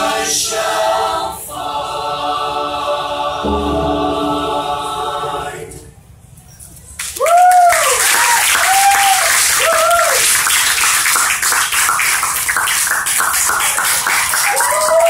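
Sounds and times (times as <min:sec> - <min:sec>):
audience applauding: 0:07.0 - 0:15.0
cheering whoops: 0:07.1 - 0:10.4, 0:14.1 - 0:15.0.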